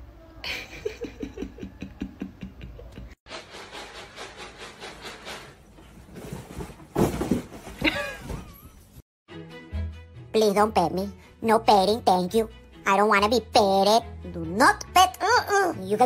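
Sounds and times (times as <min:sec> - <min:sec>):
laughter: 0:00.4 - 0:03.2
box falling with thud: 0:06.1 - 0:08.7.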